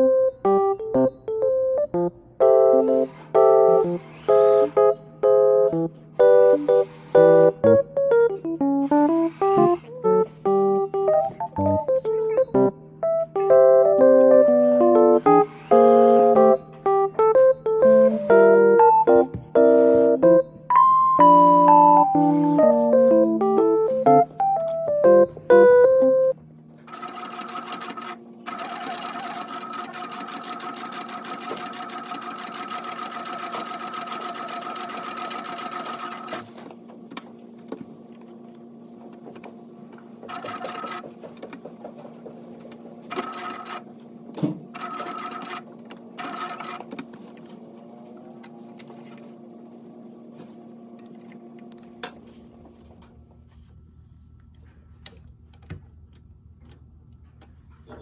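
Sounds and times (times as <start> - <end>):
sewing machine motor humming: 2.9 - 5.0, 6.2 - 7.7, 8.6 - 10.8, 14.5 - 16.6, 26.9 - 36.5, 40.3 - 41.2, 43.1 - 43.9, 44.7 - 47.0
sewing machine stitching: 2.9 - 5.0, 6.2 - 7.7, 8.7 - 10.3, 14.2 - 16.6, 26.9 - 36.6, 40.3 - 41.1, 43.1 - 43.9, 44.7 - 45.6, 46.2 - 46.9.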